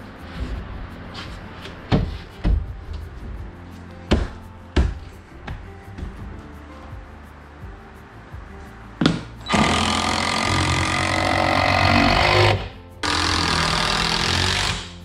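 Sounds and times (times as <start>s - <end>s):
background music: 0.0s - 15.0s
handheld power tool running: 9.5s - 14.9s.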